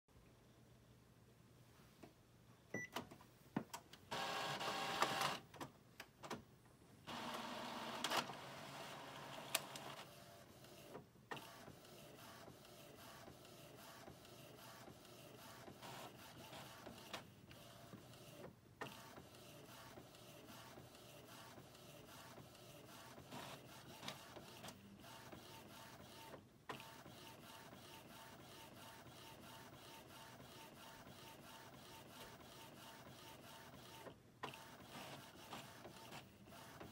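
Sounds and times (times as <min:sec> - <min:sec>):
inkjet printer printing: 0:04.1 - 0:05.4, 0:07.1 - 0:36.9
printer mechanical whirring: 0:04.1 - 0:05.4, 0:07.1 - 0:36.9.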